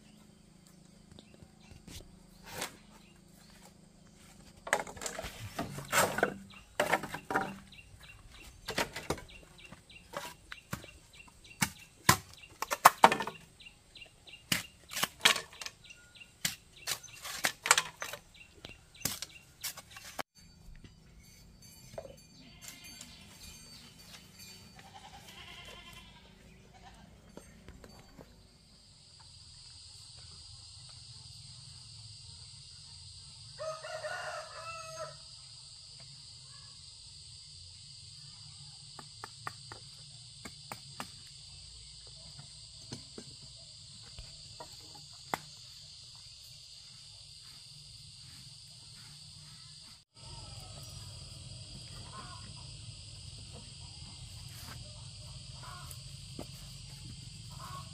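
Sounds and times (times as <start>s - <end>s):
insects droning: 0.0s - 19.8s, 20.4s - 57.9s
farm animal call: 24.6s - 27.3s, 50.2s - 56.2s, 57.4s - 57.9s.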